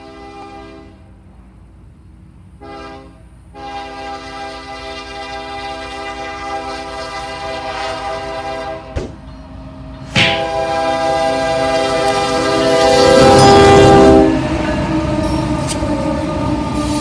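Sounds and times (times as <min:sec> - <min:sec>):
locomotive air horn blasts: 0:00.0 - 0:01.1, 0:02.6 - 0:09.0, 0:10.0 - 0:14.5
train rumbling: 0:00.0 - 0:17.0.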